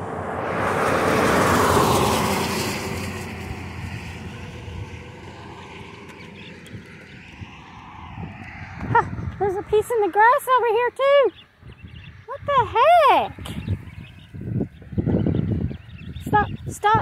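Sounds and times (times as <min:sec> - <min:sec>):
car driving past: 0:00.0 - 0:10.2.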